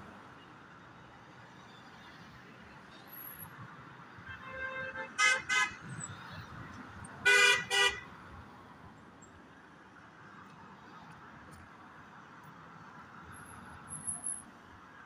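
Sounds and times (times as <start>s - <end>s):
street traffic hum: 0.0s - 15.0s
vehicle horn toots: 4.3s - 5.8s, 7.2s - 8.0s.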